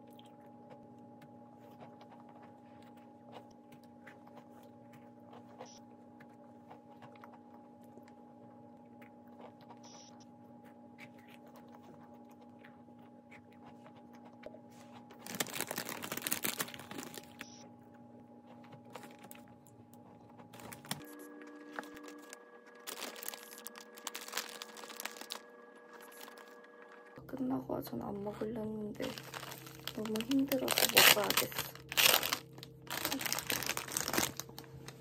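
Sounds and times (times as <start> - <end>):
cookie crunching: 0.0 - 27.0, 28.0 - 35.0
steady low hum: 0.0 - 35.0
plastic bag crinkling: 15.0 - 17.5, 18.9 - 19.6, 20.5 - 26.6, 29.0 - 35.0.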